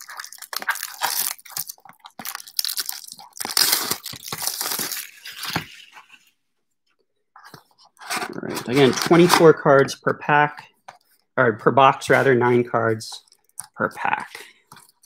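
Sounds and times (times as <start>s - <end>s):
plastic shrink wrap tearing: 0.0s - 6.1s.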